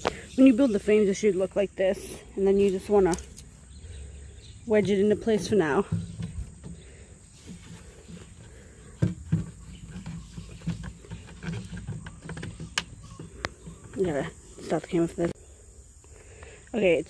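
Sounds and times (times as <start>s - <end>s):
wooden knocks: 4.7s - 14.4s.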